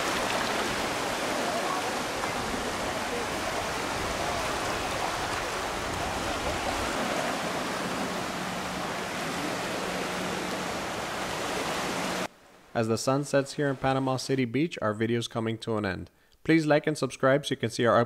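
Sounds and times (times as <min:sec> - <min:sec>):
small waves lapping on beach: 0:00.0 - 0:12.3.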